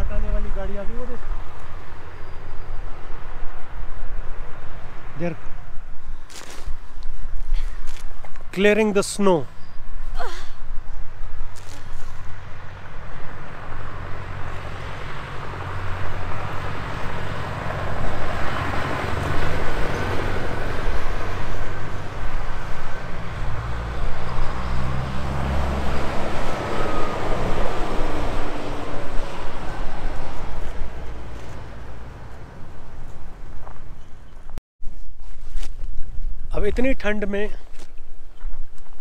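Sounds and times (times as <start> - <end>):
snow plough road noise: 11.6 - 34.6.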